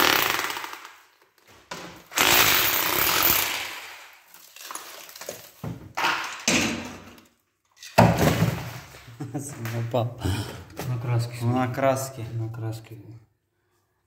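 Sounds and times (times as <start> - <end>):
power tool chiselling tiles: 0.0 - 0.8, 2.1 - 4.0.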